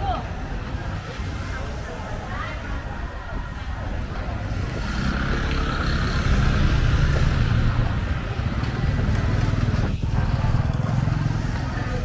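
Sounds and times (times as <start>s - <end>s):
vehicle engine humming: 3.7s - 12.0s.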